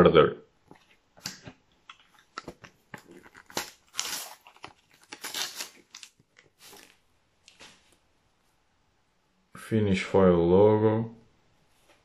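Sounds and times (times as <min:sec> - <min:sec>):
sticker packet wrapper tearing: 0:02.4 - 0:07.0.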